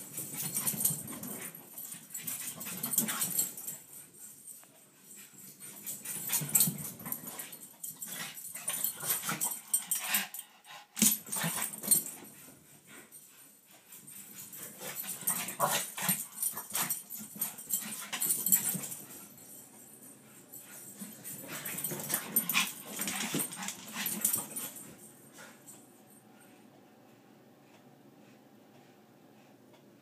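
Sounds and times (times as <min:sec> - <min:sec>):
dogs scuffling: 0:13.9 - 0:25.8.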